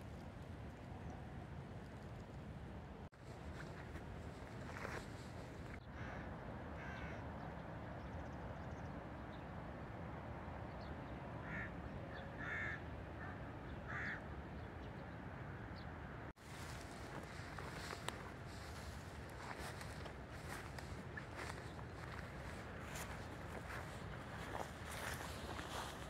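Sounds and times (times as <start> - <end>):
outdoor background noise: 0.0 - 26.0
crows cawing: 5.8 - 7.2, 11.4 - 14.3, 17.4 - 25.9.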